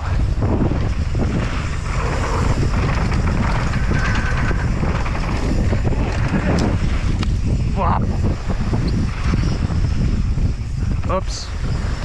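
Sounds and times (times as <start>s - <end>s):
bike rattling over bumps: 0.0s - 12.0s
wind buffeting microphone: 0.0s - 12.0s
tyres running over loose dirt: 0.4s - 9.6s.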